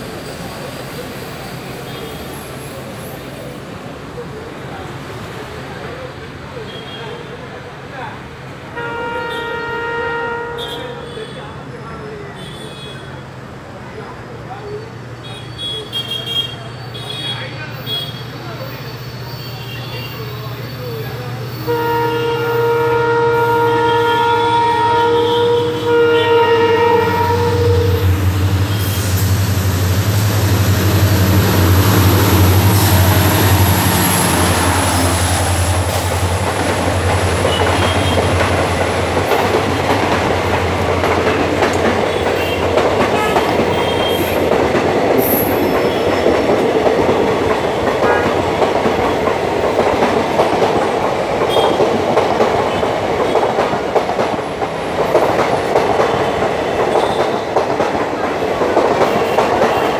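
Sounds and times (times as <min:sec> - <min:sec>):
diesel locomotive engine droning: 0:16.6 - 0:59.9
train wheels clattering on rails: 0:26.8 - 0:59.9.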